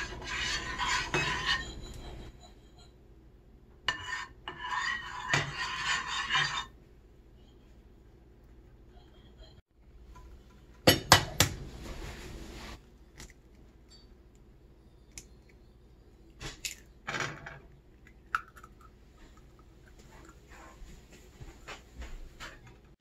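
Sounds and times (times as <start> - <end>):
egg slipping into liquid: 18.0 - 20.0.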